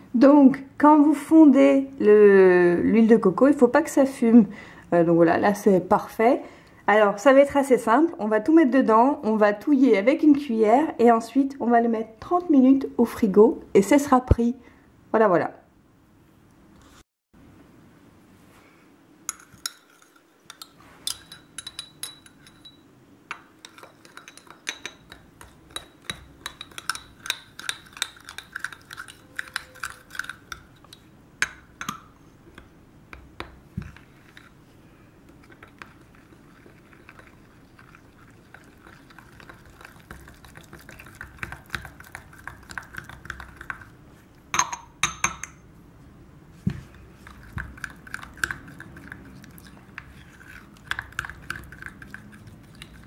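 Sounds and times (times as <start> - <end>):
metal spoon clinking in glass jar: 19.3 - 30.6, 44.5 - 45.6.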